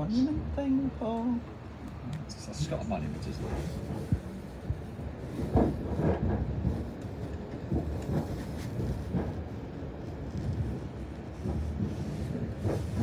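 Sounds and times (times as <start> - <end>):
train running rumble: 0.0 - 13.0
train wheels clacking on track: 3.2 - 13.0.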